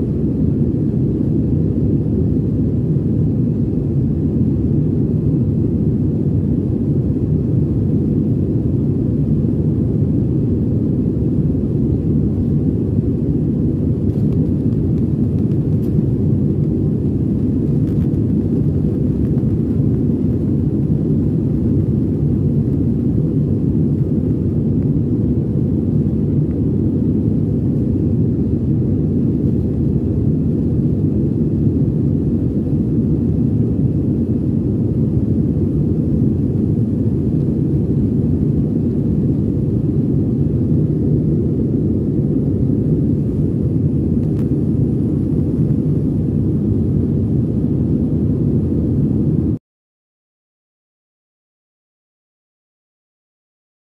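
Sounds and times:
airplane engines droning: 0:00.0 - 0:49.6
rushing air in cabin: 0:00.0 - 0:49.6.

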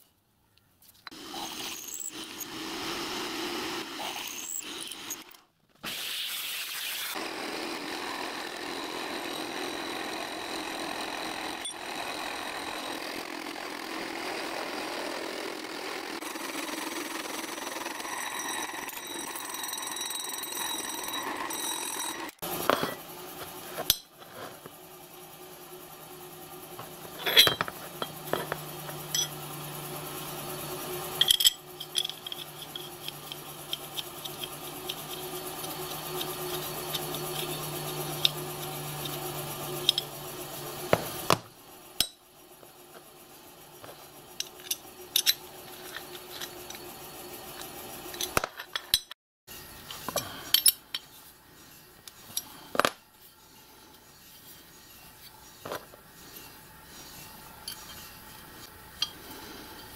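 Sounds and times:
metal parts clinking and tapping: 0:23.8 - 0:24.4, 0:26.8 - 0:29.4, 0:31.2 - 0:40.1, 0:43.8 - 0:46.8, 0:49.9 - 0:51.1, 0:57.6 - 0:58.0.

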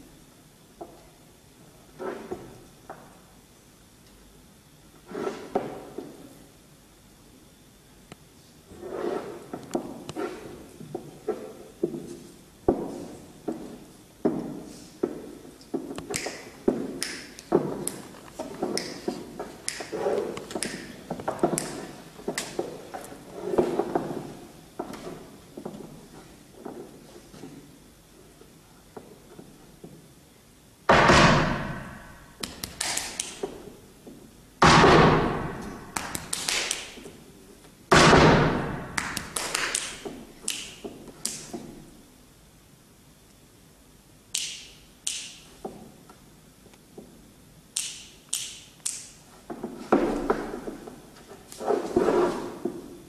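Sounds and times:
flamenco shoes striking stage: 0:15.2 - 0:23.0, 0:34.6 - 0:37.0, 0:37.9 - 0:41.8.

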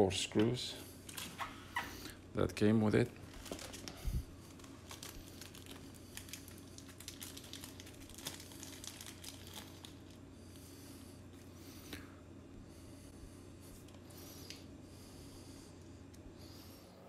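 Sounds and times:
plastic bag crinkling: 0:03.2 - 0:10.2.

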